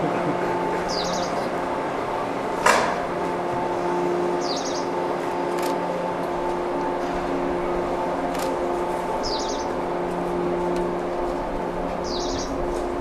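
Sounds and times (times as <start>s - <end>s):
electric train humming: 0.0s - 13.0s
small birds chirping: 0.8s - 1.5s, 4.4s - 4.9s, 9.2s - 9.7s, 12.0s - 12.6s.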